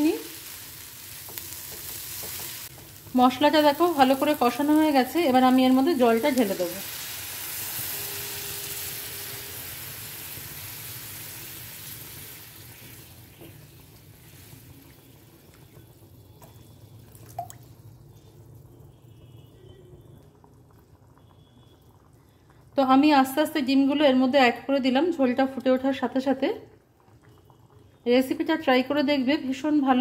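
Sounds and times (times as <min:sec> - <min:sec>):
water hissing in hot pan: 0:00.0 - 0:16.2.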